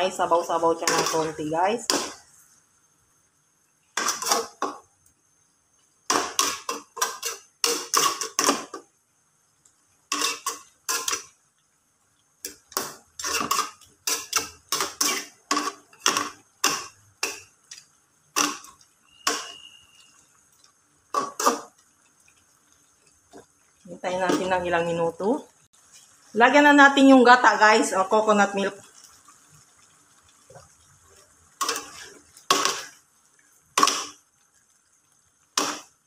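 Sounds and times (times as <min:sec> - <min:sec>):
metal utensils scraping a wok: 0:00.6 - 0:02.2, 0:04.0 - 0:04.7, 0:06.1 - 0:08.7, 0:10.1 - 0:11.3, 0:12.5 - 0:17.4, 0:18.4 - 0:20.0, 0:21.2 - 0:21.7, 0:31.6 - 0:33.0.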